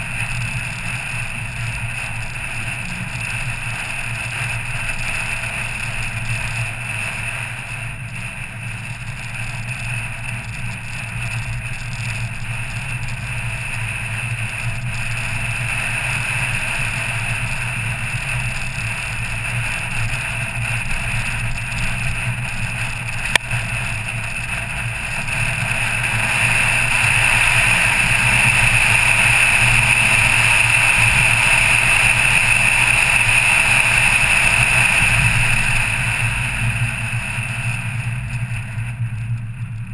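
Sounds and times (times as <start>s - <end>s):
car engine and road noise: 0.0s - 39.9s.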